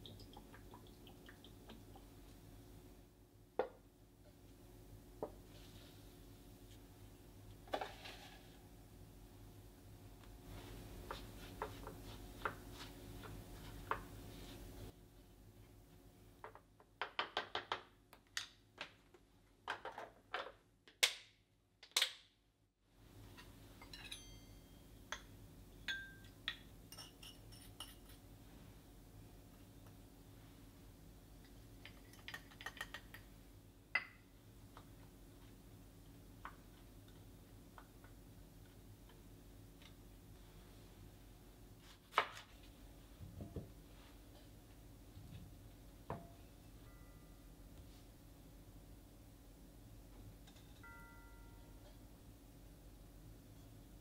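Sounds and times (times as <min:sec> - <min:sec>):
wooden spoon scraping glass container: 0:07.8 - 0:08.6
spoon clinking glass bowl: 0:23.8 - 0:28.2.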